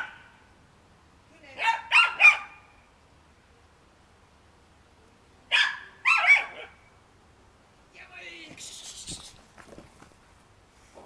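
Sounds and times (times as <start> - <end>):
dog barking: 1.6 - 2.6, 5.5 - 6.8.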